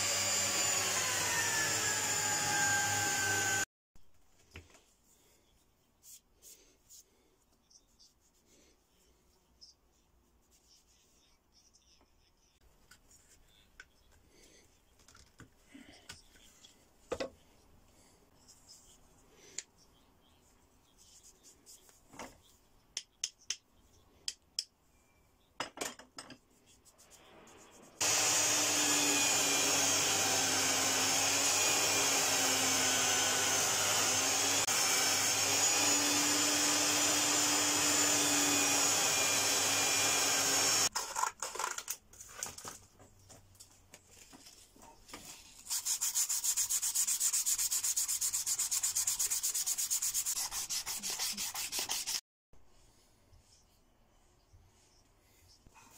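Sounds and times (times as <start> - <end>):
belt sander grinding: 0.0 - 3.6, 28.0 - 40.9.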